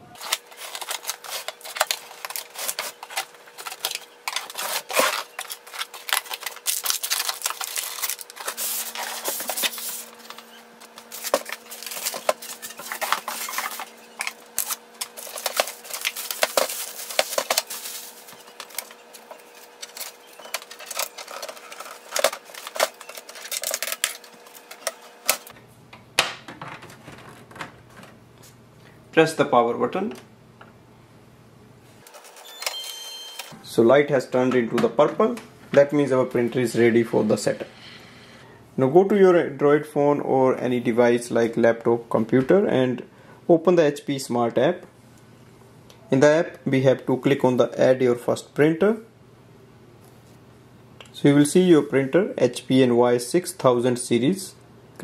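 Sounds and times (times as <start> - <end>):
faint steady hum: 0.0 - 55.0
cardboard and packing rustling: 0.2 - 25.5, 26.6 - 28.2
plastic wrap crackling: 0.2 - 25.5.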